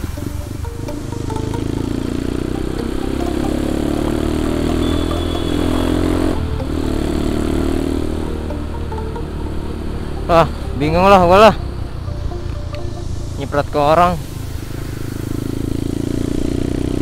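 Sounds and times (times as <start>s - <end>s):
motorcycle engine running: 0.0s - 17.0s
rain and water spray hiss: 14.2s - 15.6s.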